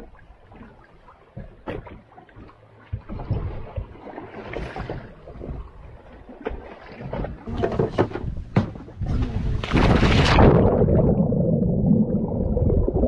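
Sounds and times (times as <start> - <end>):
water slapping against a hull: 0.0 - 11.0
wind on microphone: 7.1 - 13.0.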